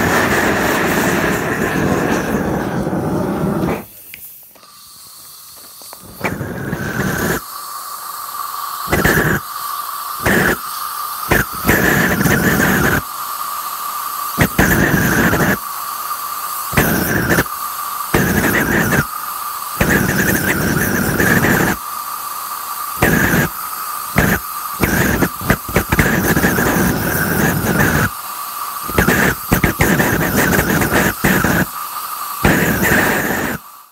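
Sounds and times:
rocket engine rushing burn: 0:00.0 - 0:33.9.

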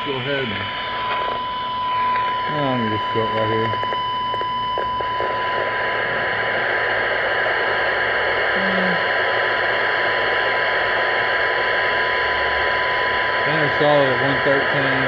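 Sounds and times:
steady test tone: 0:00.0 - 0:07.3
loud radio static hiss: 0:00.0 - 0:15.0.

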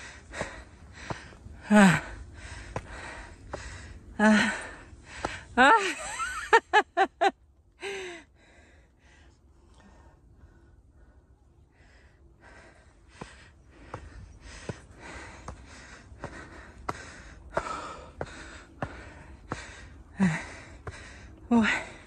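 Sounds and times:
footsteps on stone steps: 0:00.0 - 0:02.0, 0:13.2 - 0:21.2
heavy panting: 0:00.0 - 0:05.5, 0:12.4 - 0:22.0.

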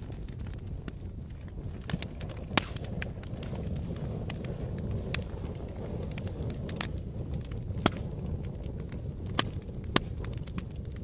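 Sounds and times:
flames rumbling: 0:00.0 - 0:11.0
wood crackling and popping: 0:00.0 - 0:11.0.

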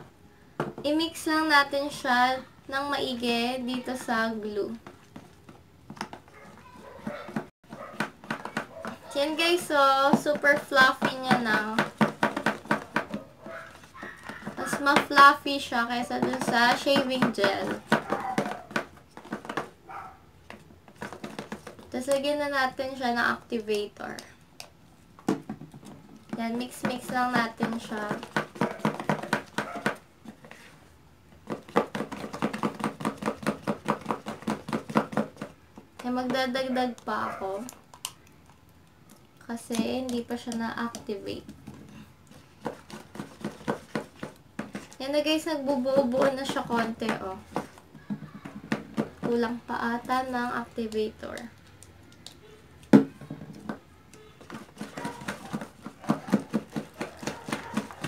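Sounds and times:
spoon stirring squelching slime: 0:01.2 - 0:25.1, 0:25.7 - 0:53.2, 0:53.8 - 0:58.0.

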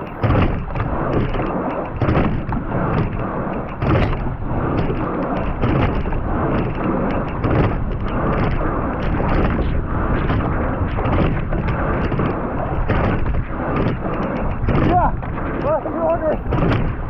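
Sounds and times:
oar clicking in oarlock: 0:00.0 - 0:10.5
water rushing past boat: 0:00.0 - 0:17.0
wind buffeting microphone: 0:00.0 - 0:17.0.

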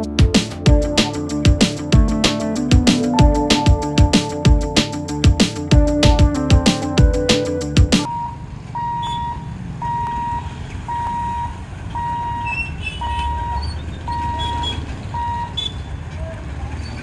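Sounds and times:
traffic: 0:08.0 - 0:17.0.

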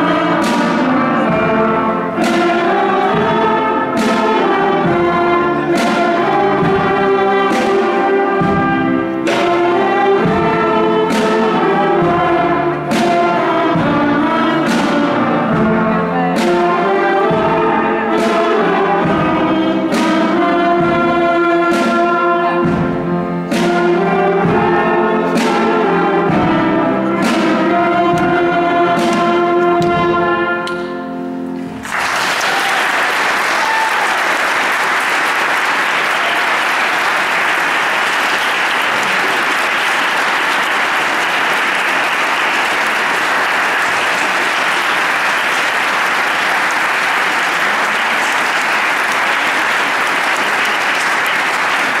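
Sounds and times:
drum hits: 0:00.0 - 0:22.0
brass band playing chords: 0:00.0 - 0:52.0
audience applauding: 0:31.7 - 0:52.0.

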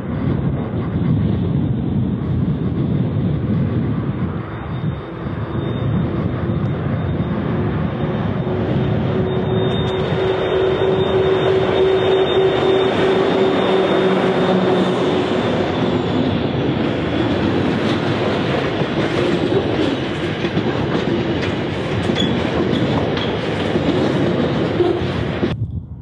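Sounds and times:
diesel locomotive engines humming: 0:00.0 - 0:25.6
train wheels rumbling on rail: 0:00.0 - 0:26.0
clicks of train wheels: 0:09.3 - 0:14.1, 0:17.4 - 0:25.6.

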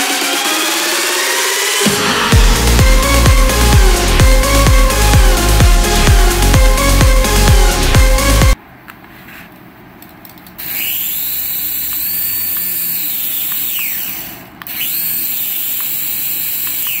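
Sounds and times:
toy helicopter rotors whining: 0:10.6 - 0:17.0.

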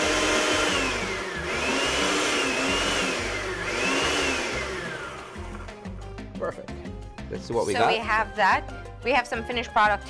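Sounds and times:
blender motor running: 0:00.0 - 0:06.0.

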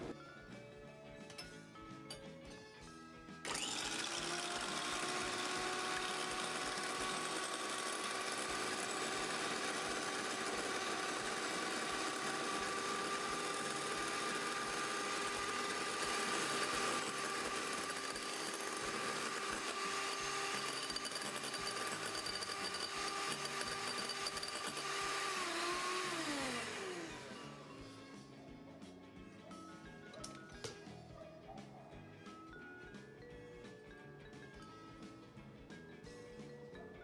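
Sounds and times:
electric hand mixer whirring: 0:03.5 - 0:28.2.

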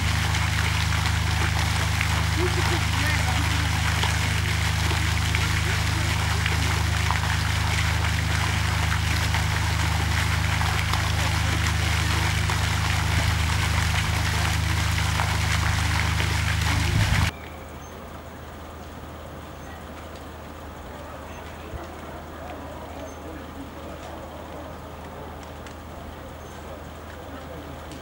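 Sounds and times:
low steady hum: 0:00.0 - 0:19.2
water rushing and trickling: 0:00.0 - 0:27.1.

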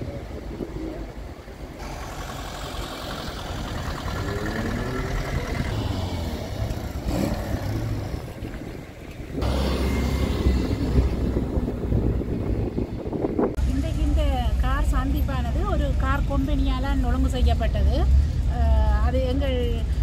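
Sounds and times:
cars driving past: 0:00.0 - 0:14.1.

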